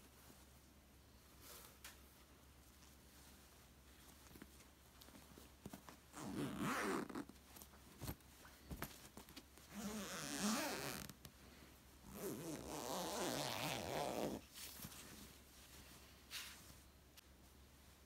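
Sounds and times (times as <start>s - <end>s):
fabric handling: 0.0s - 18.0s
zipper pulled on pillow cover: 6.1s - 7.3s, 9.7s - 11.2s, 12.1s - 14.5s.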